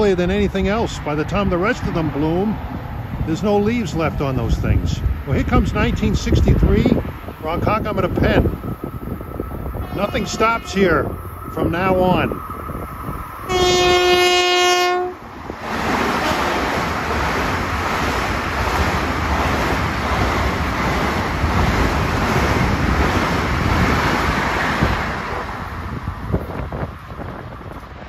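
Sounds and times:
train wheels rushing on rail: 0:00.0 - 0:28.0
train horn: 0:09.8 - 0:11.1, 0:13.4 - 0:15.2, 0:16.2 - 0:16.6.

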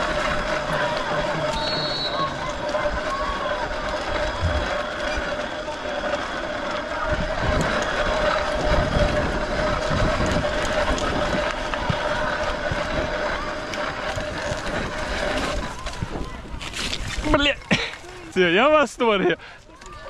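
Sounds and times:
steady whine: 0:00.0 - 0:16.6
bicycle rolling over dirt path: 0:00.0 - 0:20.0
wind buffeting microphone: 0:06.4 - 0:18.4.

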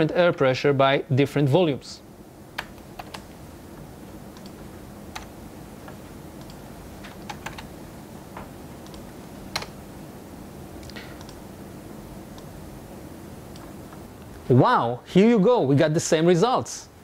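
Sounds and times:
low steady hum: 0:00.0 - 0:17.0
computer keyboard typing: 0:02.6 - 0:03.3, 0:04.3 - 0:07.7, 0:08.8 - 0:09.8, 0:10.8 - 0:11.4.

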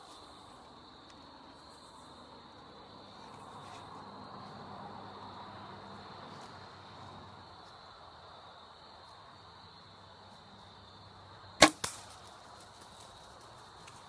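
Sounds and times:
crickets chirring: 0:00.0 - 0:14.0
bow shot crack: 0:11.6 - 0:12.3.

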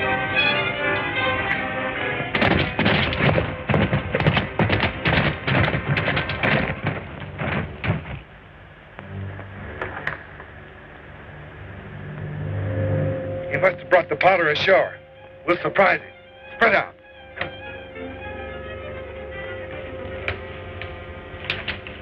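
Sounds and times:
orchestral music: 0:00.0 - 0:07.5, 0:09.0 - 0:22.0
horses galloping: 0:02.2 - 0:08.9.

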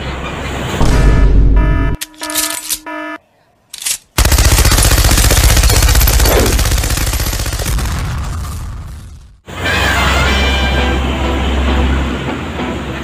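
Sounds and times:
electronic beeping tones: 0:00.9 - 0:03.2
machine-gun automatic fire: 0:04.2 - 0:08.7.

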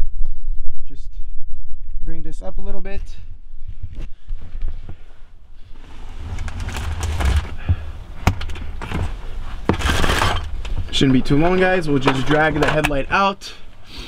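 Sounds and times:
steady low rumble: 0:00.0 - 0:09.8
rustling handling noise: 0:05.7 - 0:13.2.

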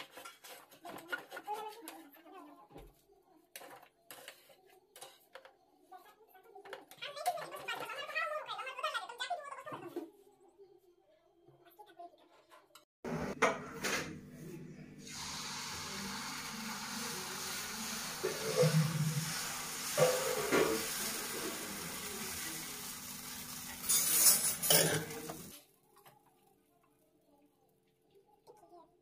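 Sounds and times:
ladle scraping a pan: 0:00.0 - 0:02.2, 0:03.6 - 0:05.5, 0:18.1 - 0:22.4, 0:23.3 - 0:25.5
batter sizzling on a pan: 0:15.0 - 0:26.5.

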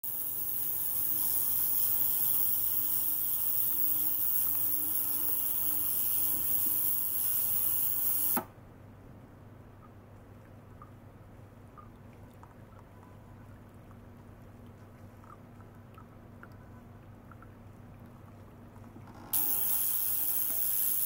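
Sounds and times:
ultrasonic cleaner hissing: 0:00.0 - 0:08.5, 0:19.4 - 0:21.0
water trickling: 0:09.9 - 0:19.1.

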